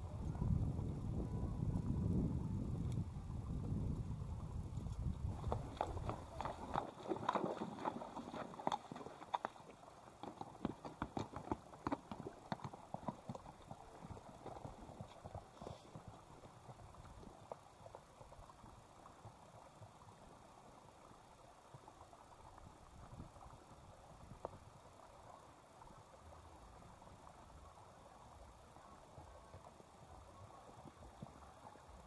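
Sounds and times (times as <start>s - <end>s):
horse hooves on loose rock: 3.6s - 20.3s.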